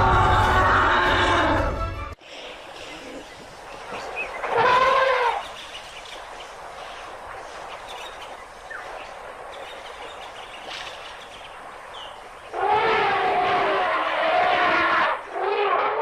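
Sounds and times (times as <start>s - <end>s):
faint bird chirp: 2.2s - 12.6s
loud animal call: 4.0s - 5.6s, 12.5s - 16.0s.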